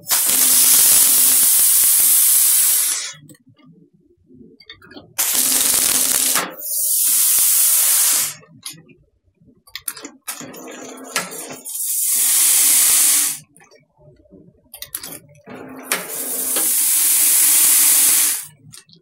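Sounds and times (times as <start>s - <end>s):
packaging machine running: 0.0s - 2.3s, 5.2s - 8.3s, 15.6s - 18.5s
loud hissing bursts: 0.0s - 3.2s, 5.2s - 8.4s, 11.6s - 13.4s, 16.1s - 18.5s.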